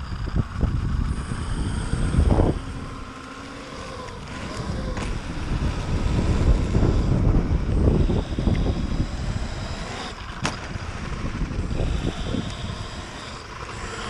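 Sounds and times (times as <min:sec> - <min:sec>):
tyres rumbling on concrete: 0:00.0 - 0:14.0
wind buffeting microphone: 0:00.0 - 0:14.0.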